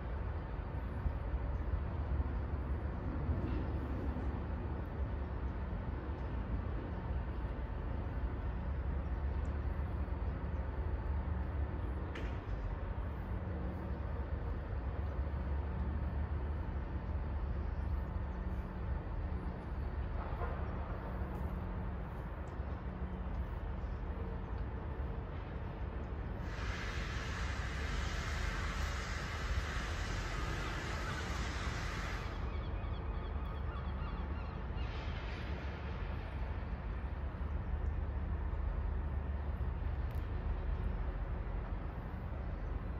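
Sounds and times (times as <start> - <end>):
low city background rumble: 0.0 - 42.9
faint bird calls: 32.2 - 35.1.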